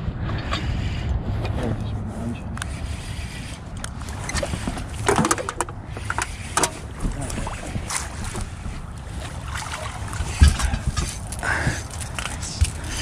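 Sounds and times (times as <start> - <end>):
water and wind rumble: 0.0 - 13.0
gear knocking in boat: 4.2 - 8.6.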